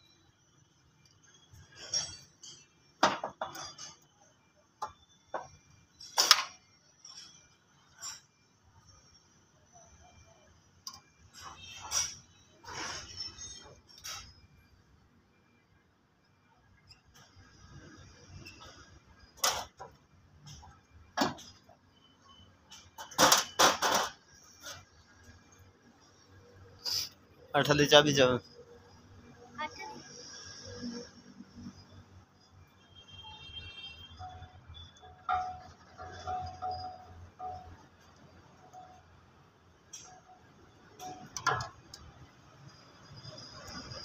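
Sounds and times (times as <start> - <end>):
metal scraping: 1.5 - 2.8, 11.3 - 14.4
metal clanks and knocks: 1.8 - 4.1, 22.7 - 24.7, 35.1 - 37.7.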